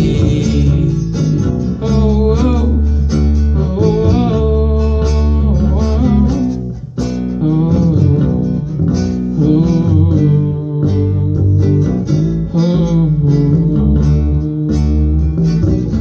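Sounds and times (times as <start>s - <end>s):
bass: 0.0s - 16.0s
strummed acoustic guitar: 0.0s - 16.0s.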